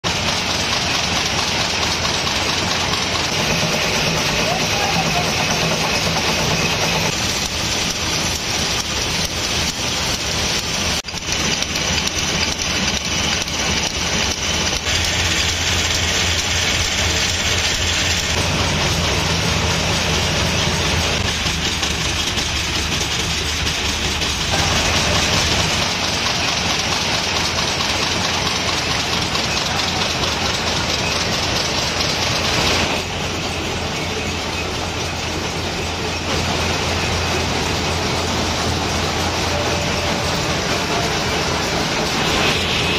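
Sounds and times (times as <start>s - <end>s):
machines clattering: 0.0s - 42.9s.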